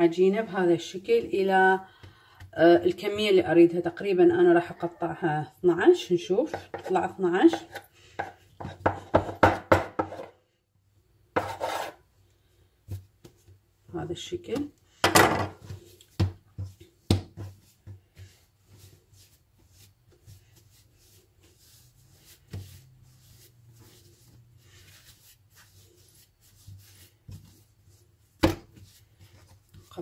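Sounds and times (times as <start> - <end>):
hands handling dough: 11.2 - 30.0.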